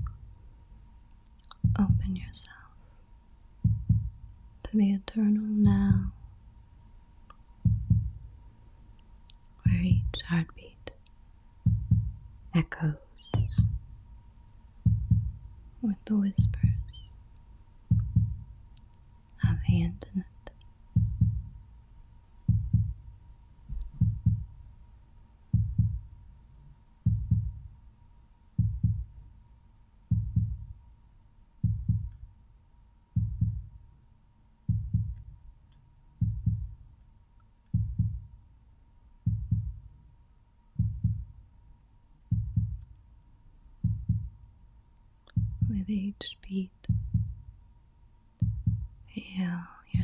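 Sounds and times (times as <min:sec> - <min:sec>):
heartbeat thumps: 0:00.0 - 0:00.4, 0:01.5 - 0:02.7, 0:03.6 - 0:04.7, 0:05.5 - 0:06.4, 0:07.6 - 0:08.4, 0:09.6 - 0:10.5, 0:11.6 - 0:12.6, 0:13.2 - 0:14.2, 0:14.8 - 0:15.8, 0:16.4 - 0:17.1, 0:17.9 - 0:18.7, 0:19.4 - 0:20.2, 0:20.9 - 0:21.7, 0:22.4 - 0:24.7, 0:25.5 - 0:26.2, 0:27.0 - 0:27.8, 0:28.6 - 0:29.2, 0:30.1 - 0:30.8, 0:31.6 - 0:32.2, 0:33.2 - 0:33.8, 0:34.7 - 0:35.4, 0:36.2 - 0:36.8, 0:37.7 - 0:38.3, 0:39.2 - 0:39.9, 0:40.8 - 0:41.4, 0:42.3 - 0:42.9, 0:43.8 - 0:44.4, 0:45.3 - 0:45.9, 0:46.9 - 0:47.5, 0:48.4 - 0:49.0.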